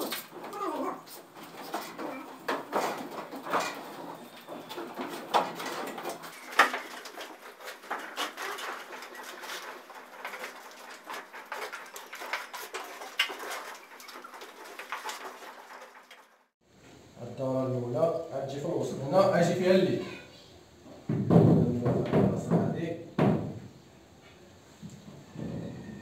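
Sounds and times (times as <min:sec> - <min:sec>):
tools scraping wet plaster: 0:00.0 - 0:16.2.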